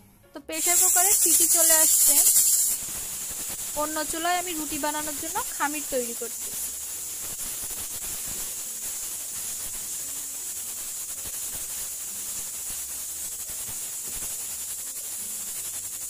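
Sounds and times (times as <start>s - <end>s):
pressure cooker steam hissing: 0.5s - 16.0s
spoon scraping a metal wok: 0.6s - 5.6s.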